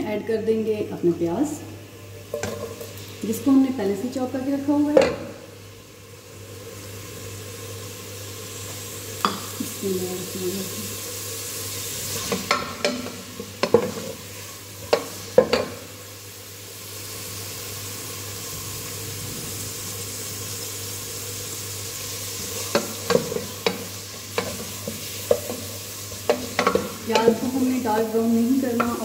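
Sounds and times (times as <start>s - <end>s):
onions sizzling in oil: 0.0s - 29.0s
spoon knocking against pot: 12.3s - 14.1s, 14.9s - 15.8s, 26.2s - 27.4s.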